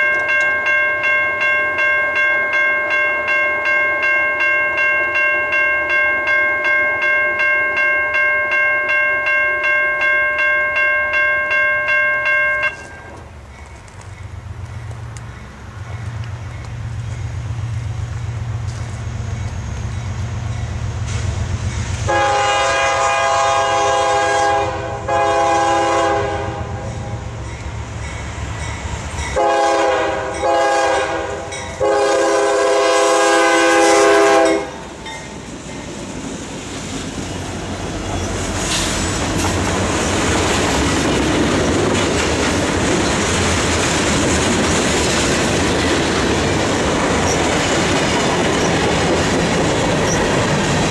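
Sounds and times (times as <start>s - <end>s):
locomotive engines rumbling: 12.5s - 50.9s
train horn blasts: 22.0s - 27.4s, 29.3s - 34.9s.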